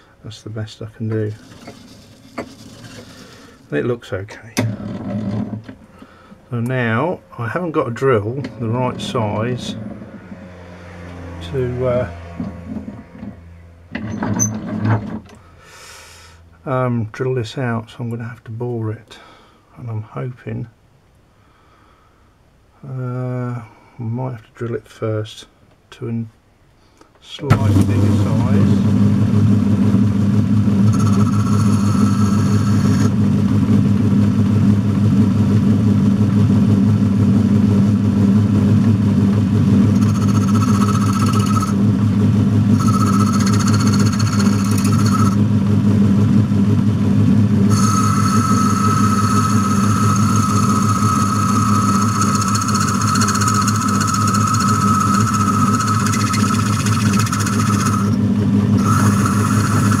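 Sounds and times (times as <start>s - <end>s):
high-pitched cutting whine: 27.4s - 34.2s, 37.7s - 60.0s
lathe humming: 27.5s - 33.3s, 38.8s - 45.7s, 47.6s - 60.0s.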